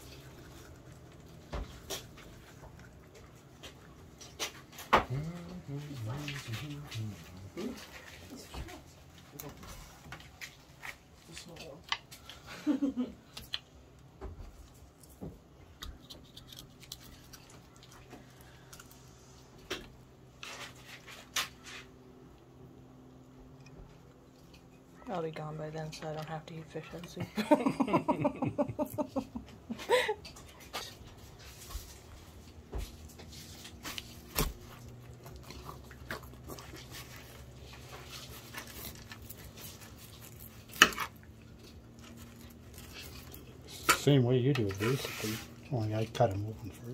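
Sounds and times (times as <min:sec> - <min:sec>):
knife crunching through fish: 0:33.6 - 0:43.6.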